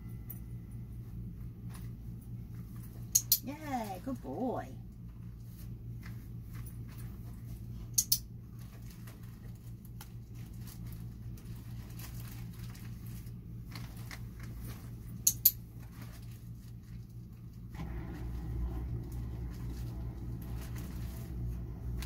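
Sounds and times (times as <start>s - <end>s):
low steady hum: 0.0s - 22.0s
dog rustling fabric bag: 8.5s - 15.1s.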